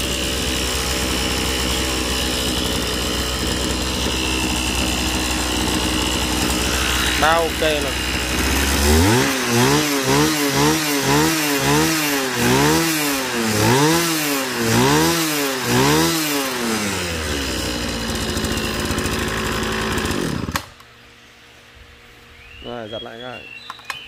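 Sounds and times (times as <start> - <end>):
brush cutter engine revving: 0.0 - 20.9.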